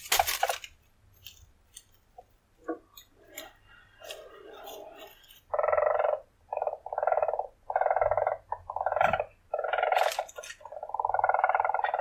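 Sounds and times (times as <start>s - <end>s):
weasel purring: 3.3s - 12.0s.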